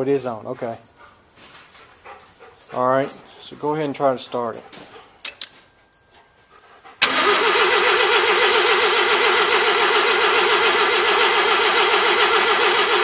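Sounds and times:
engine cranking: 7.0 - 13.0.

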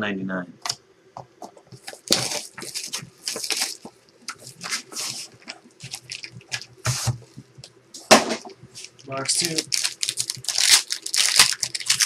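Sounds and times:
cards and wrappers rustling: 1.5 - 7.4, 8.7 - 12.0.

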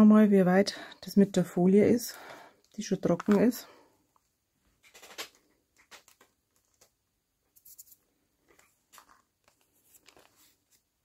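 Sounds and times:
cellophane bag crinkling: 4.8 - 6.9.

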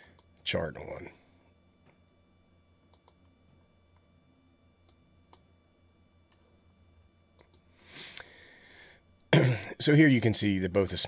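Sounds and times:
low steady hum: 0.0 - 11.0
computer mouse clicks: 2.9 - 3.2, 7.4 - 7.7.

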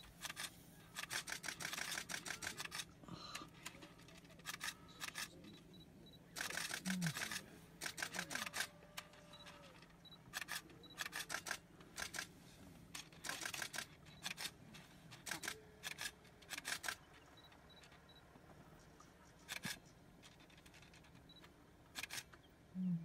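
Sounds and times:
camera shutters clicking: 0.2 - 2.9, 4.0 - 5.4, 6.4 - 12.3, 13.0 - 17.0.

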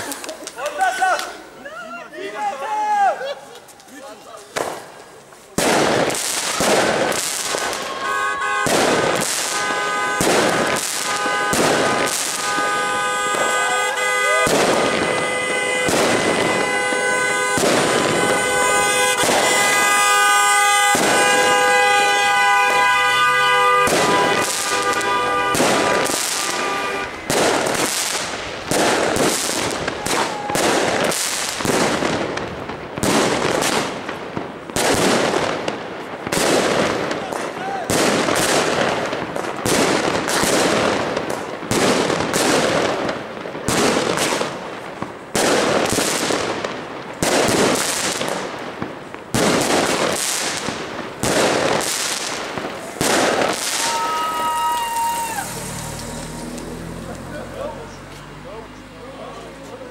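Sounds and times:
fireworks banging: 0.0 - 1.6, 3.6 - 58.3
car horns honking: 7.6 - 28.2.

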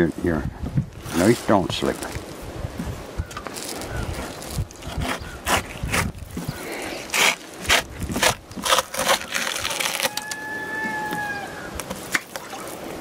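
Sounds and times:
knife crunching through fish bones: 4.8 - 6.2, 7.0 - 10.3.

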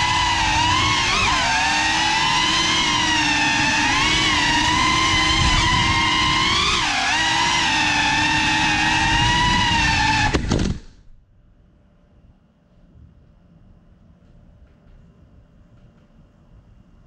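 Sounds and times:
drone motors whining: 0.0 - 11.1.

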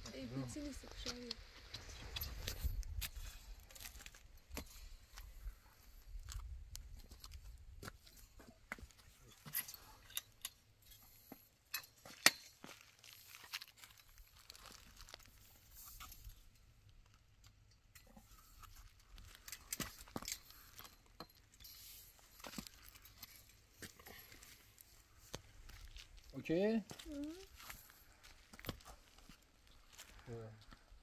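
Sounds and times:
footsteps crunching on gritty concrete: 22.1 - 31.0.

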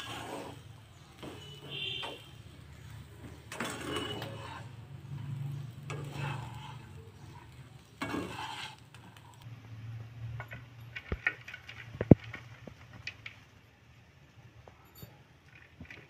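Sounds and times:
spatula scraping rice in pan: 0.0 - 9.4.

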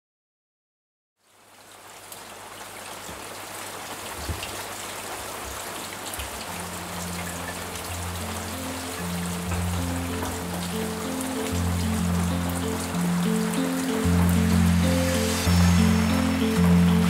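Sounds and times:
rain pattering on wet ground: 1.2 - 17.0
low background music: 6.3 - 17.0.

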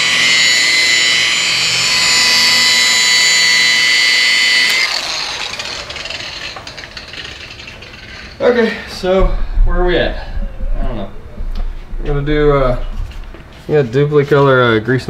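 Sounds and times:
rotary polisher whining: 0.0 - 9.2.

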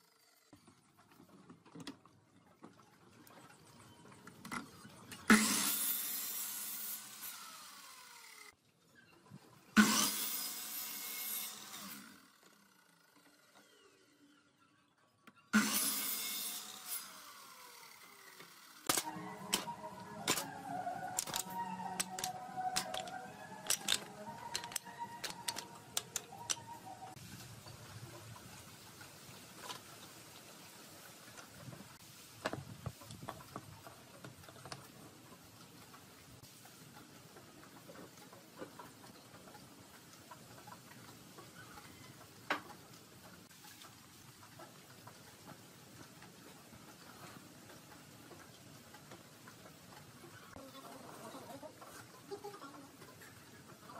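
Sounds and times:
mitre saw cutting wood: 5.3 - 8.5, 9.8 - 14.2, 15.6 - 26.7
saw winding down: 5.3 - 8.6, 9.8 - 14.6, 15.6 - 27.2.

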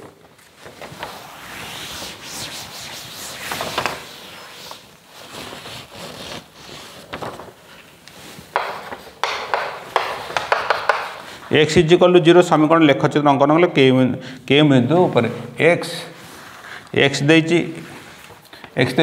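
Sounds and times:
cloth wiping a chalkboard: 0.6 - 11.6, 15.0 - 18.4
chalk scraping and tapping: 8.5 - 11.3.

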